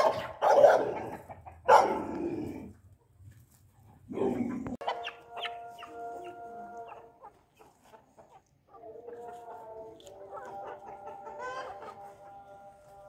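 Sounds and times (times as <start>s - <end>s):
dog barking: 0.0s - 2.2s
chickens and roosters clucking: 0.0s - 13.0s.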